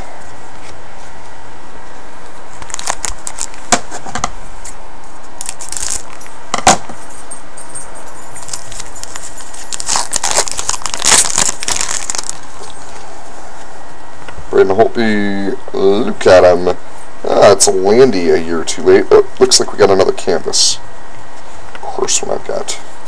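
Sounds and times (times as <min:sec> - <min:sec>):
steady hiss: 0:00.0 - 0:23.0
trading cards rustling: 0:02.6 - 0:03.8, 0:05.4 - 0:06.4, 0:08.3 - 0:13.1.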